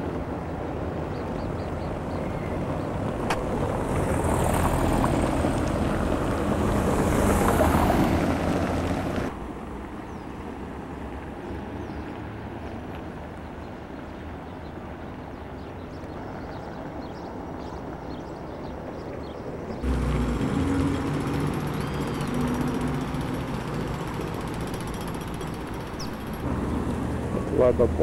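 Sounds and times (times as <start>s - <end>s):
vehicle engine hum: 0.0s - 12.8s, 19.6s - 28.0s
outdoor rumble: 19.7s - 28.0s.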